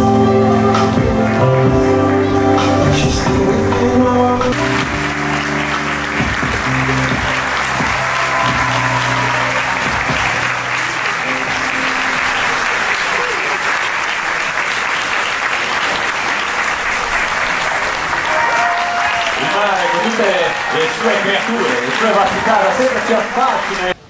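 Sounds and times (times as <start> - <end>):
background music: 0.0 - 13.0
audience applauding: 4.5 - 24.0.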